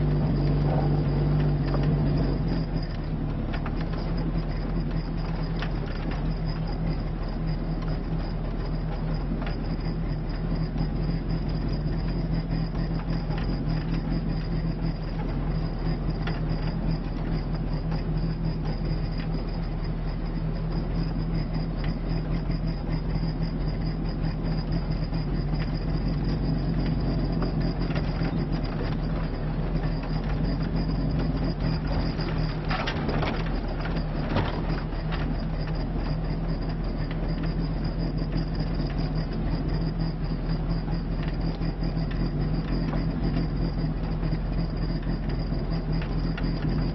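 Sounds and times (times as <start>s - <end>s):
car engine running: 0.0s - 46.9s
car interior rattles and knocks: 0.0s - 46.9s.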